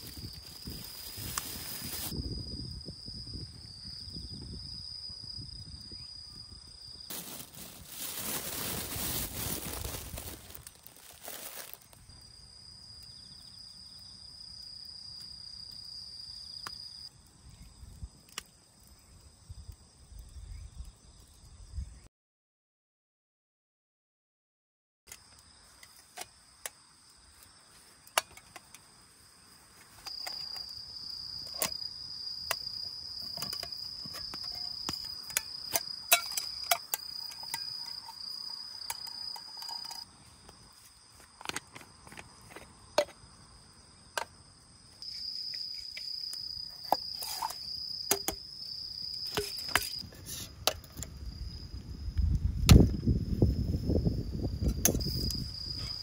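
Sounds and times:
high-pitched insect trill: 0:00.0 - 0:22.0, 0:25.2 - 0:41.3, 0:41.9 - 0:56.0
campfire crackling: 0:07.1 - 0:20.3.

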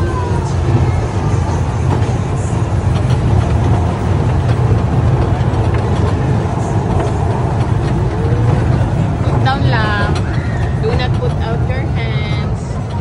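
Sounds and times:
kiddie train rumbling: 0:00.0 - 0:13.0.

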